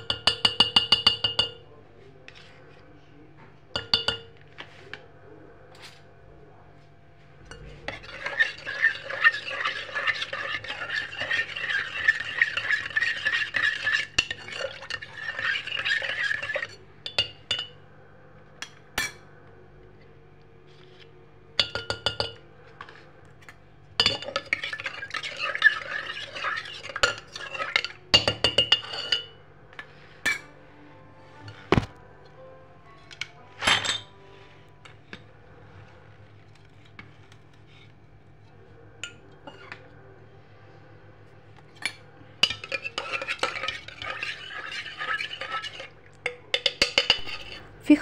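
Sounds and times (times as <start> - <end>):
spoon clinking against pot: 0.0 - 1.6, 3.8 - 4.4, 7.5 - 17.8, 21.6 - 22.4, 24.0 - 29.4, 41.7 - 47.6
spoon stirring in metal pot: 0.0 - 1.6, 3.8 - 5.0, 7.4 - 17.8, 20.8 - 30.6, 32.9 - 40.0, 41.6 - 47.8.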